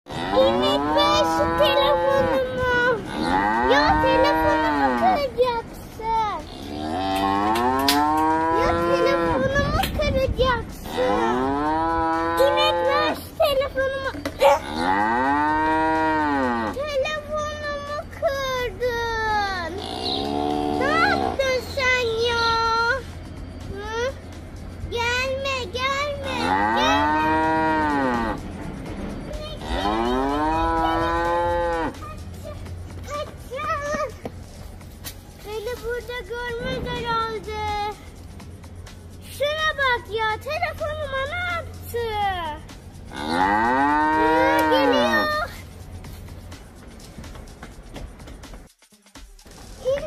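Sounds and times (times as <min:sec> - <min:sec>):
cow mooing: 0:03.0 - 0:05.0, 0:06.5 - 0:09.4, 0:10.8 - 0:13.2, 0:14.4 - 0:16.8, 0:19.8 - 0:21.4, 0:26.4 - 0:28.4, 0:29.6 - 0:32.0, 0:43.1 - 0:45.2.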